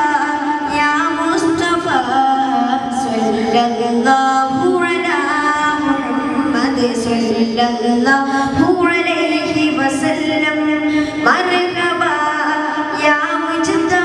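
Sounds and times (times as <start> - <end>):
man singing over loudspeakers: 2.4 - 4.7.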